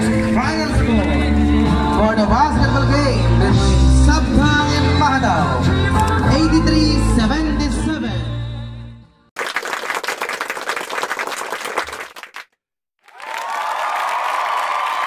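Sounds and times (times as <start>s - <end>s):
music: 0.0s - 9.3s
applause: 9.4s - 15.0s.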